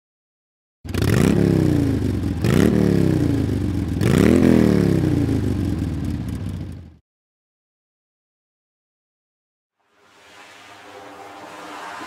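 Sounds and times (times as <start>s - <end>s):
engine revving: 0.9s - 7.0s, 9.9s - 12.0s.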